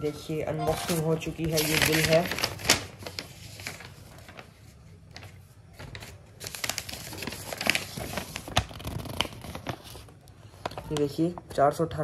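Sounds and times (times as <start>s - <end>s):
paper rustling and crinkling: 0.7s - 11.4s.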